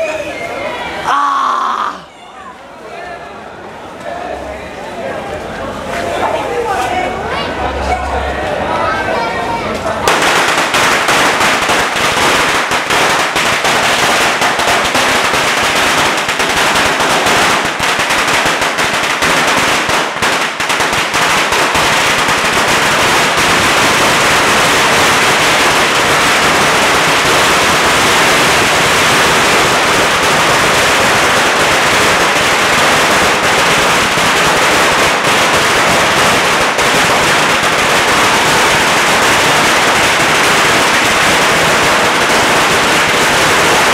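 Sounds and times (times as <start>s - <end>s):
firecrackers crackling: 9.9s - 43.9s.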